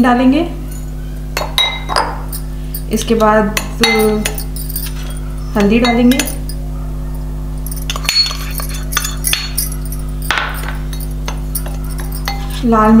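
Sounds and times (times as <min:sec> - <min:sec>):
steady low hum: 0:00.0 - 0:13.0
spoon clinking against glass bowl: 0:00.7 - 0:06.7, 0:07.6 - 0:12.9
spoon scraping bowl: 0:10.8 - 0:12.8.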